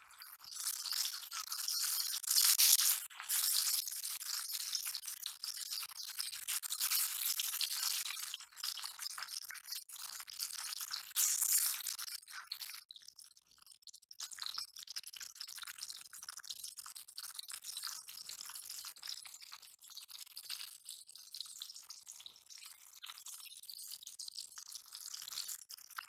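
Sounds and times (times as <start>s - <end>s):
fish sizzling in hot oil: 0.2s - 12.6s.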